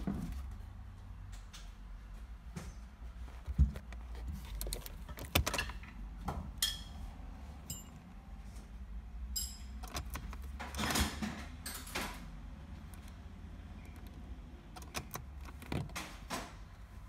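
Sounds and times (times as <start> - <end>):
hand tools clinking on metal: 9.3 - 9.8.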